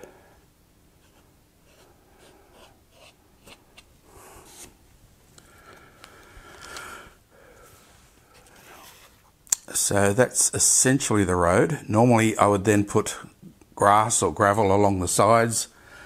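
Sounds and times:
faint scratching and rubbing: 0:01.0 - 0:04.8, 0:07.6 - 0:09.4.

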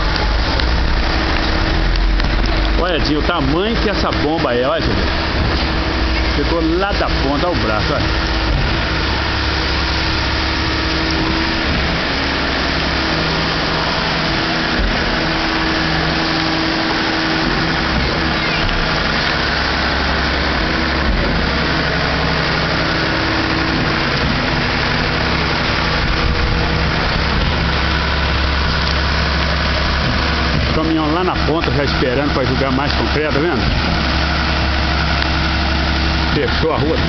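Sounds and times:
diesel engine running: 0:00.0 - 0:37.0.

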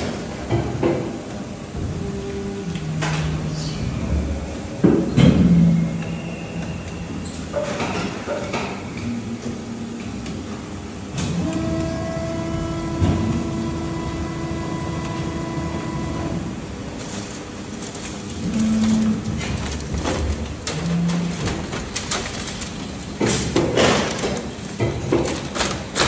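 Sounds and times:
steady machine whine: 0:00.0 - 0:08.0, 0:08.8 - 0:23.2
machine clanks and knocks: 0:18.3 - 0:26.0.

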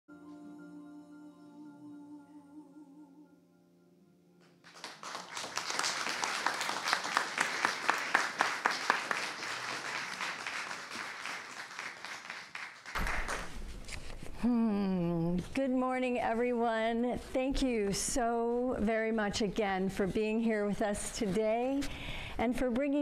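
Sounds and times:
held music chord: 0:00.1 - 0:04.6
congregation applauding: 0:04.6 - 0:13.6.

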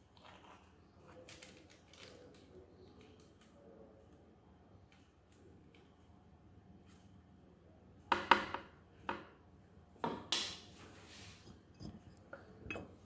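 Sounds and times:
short scrape: 0:10.8 - 0:11.6.

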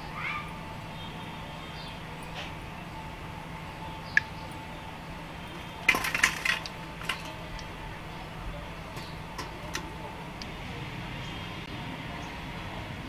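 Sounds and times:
skimmer clinking against metal bowl: 0:05.6 - 0:07.7.

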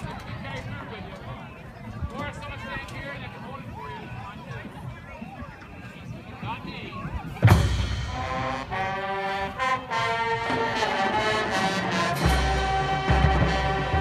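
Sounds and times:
marching band playing: 0:07.4 - 0:14.0
sustained brass chords: 0:07.5 - 0:14.0.

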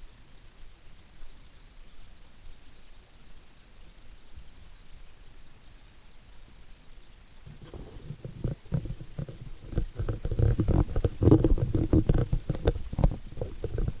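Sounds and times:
microphone handling bumps: 0:07.5 - 0:14.0.

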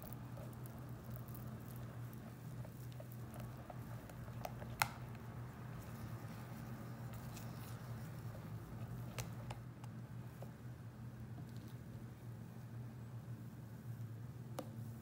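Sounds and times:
spatula squishing wet batter: 0:00.0 - 0:10.5.

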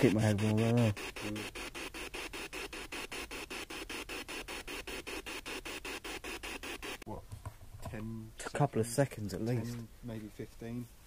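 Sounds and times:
choppy pulsing radio static: 0:00.0 - 0:07.0.

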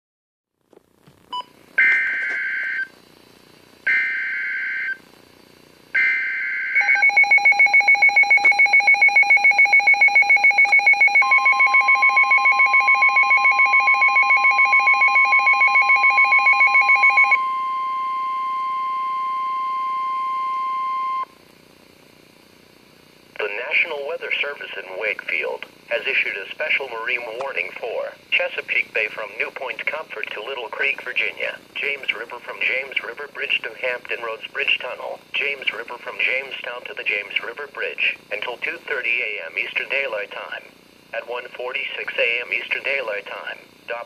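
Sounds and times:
steady warning alarm tone: 0:01.8 - 0:02.9, 0:03.8 - 0:05.0, 0:05.9 - 0:21.3.

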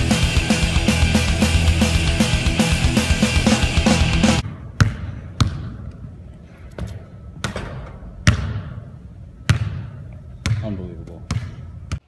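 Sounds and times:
rock music: 0:00.0 - 0:04.4
basketball bouncing on gym floor: 0:04.4 - 0:05.8, 0:06.8 - 0:08.8, 0:09.4 - 0:12.0.

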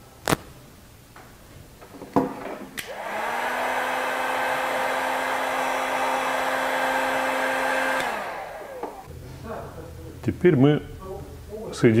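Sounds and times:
heat gun fan whirring: 0:02.8 - 0:09.1
heat gun switch click: 0:07.9 - 0:08.2.

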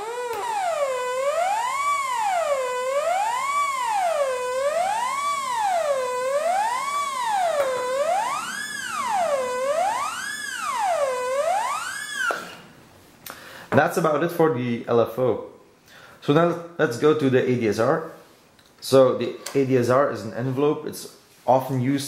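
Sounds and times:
buzzy synth tone sweeping: 0:00.0 - 0:12.7.

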